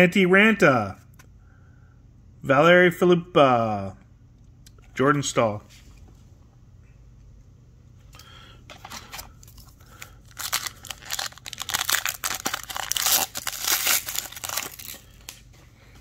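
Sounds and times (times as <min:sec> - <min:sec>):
foil wrapper tearing and crinkling: 0:09.4 - 0:15.2.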